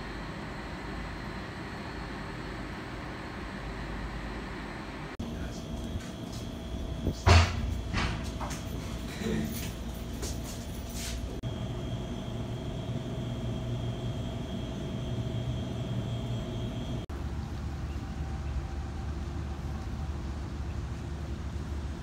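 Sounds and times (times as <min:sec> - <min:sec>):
urban background hum: 0:00.0 - 0:22.0
faint high whine: 0:09.5 - 0:22.0.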